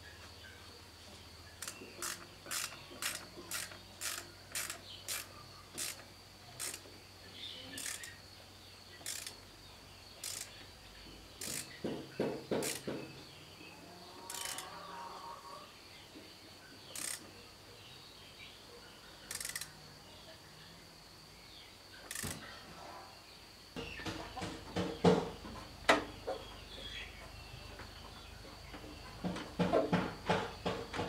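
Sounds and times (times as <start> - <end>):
knocks: 11.1 - 13.2, 23.8 - 26.1, 28.8 - 31.0.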